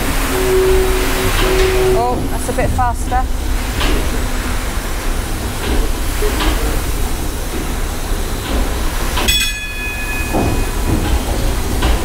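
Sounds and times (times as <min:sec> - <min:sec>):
steam engine rumbling: 0:00.0 - 0:12.0
bell-like ring: 0:09.3 - 0:10.9.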